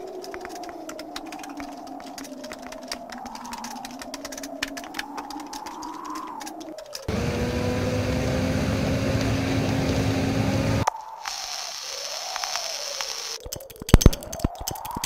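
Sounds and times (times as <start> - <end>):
scattered clicks: 0.0 - 7.1, 10.8 - 15.0
bus engine drone: 7.1 - 10.9.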